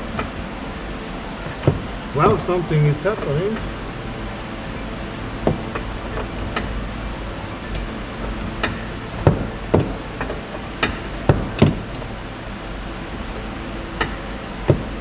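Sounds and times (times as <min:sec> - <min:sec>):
steady low hum: 0:00.0 - 0:15.0
spanner clicking on metal nut: 0:07.7 - 0:12.1.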